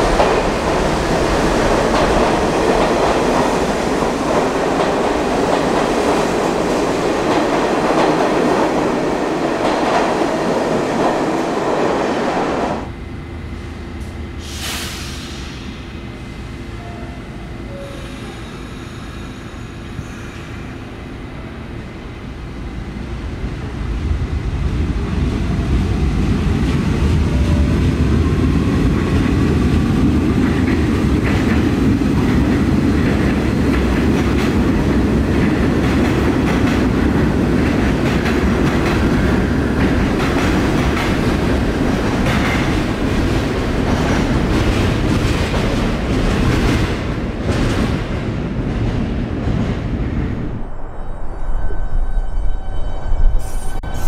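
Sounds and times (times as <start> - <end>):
subway train rumble: 0.0 - 54.0.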